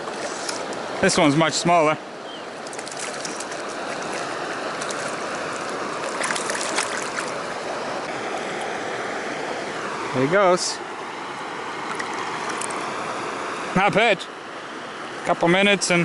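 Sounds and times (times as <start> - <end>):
fish splashing: 0.0 - 0.9, 2.5 - 8.1, 11.8 - 13.0
creek water rushing: 0.0 - 16.0.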